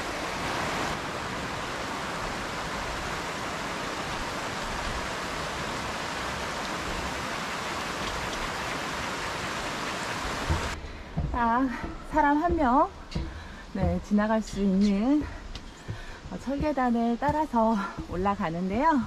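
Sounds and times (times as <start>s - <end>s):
stream rushing over rocks: 0.0s - 10.8s.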